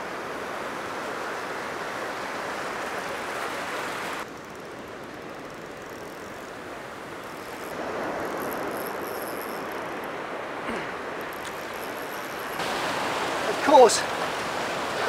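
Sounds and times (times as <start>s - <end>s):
wind: 0.0s - 15.0s
ocean surf breaking: 6.4s - 15.0s.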